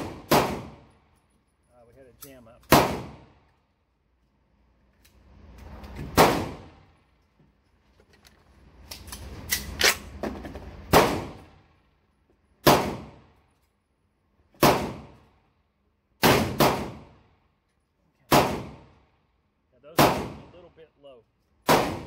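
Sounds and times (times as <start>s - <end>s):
shotgun shots with ringing echo: 0.0s - 0.9s, 2.7s - 3.4s, 6.2s - 6.8s, 10.9s - 11.6s, 12.6s - 13.2s, 14.6s - 15.2s, 16.2s - 17.2s, 18.3s - 18.9s, 20.0s - 20.5s, 21.6s - 22.0s
metallic clacks of gun action: 8.0s - 10.6s.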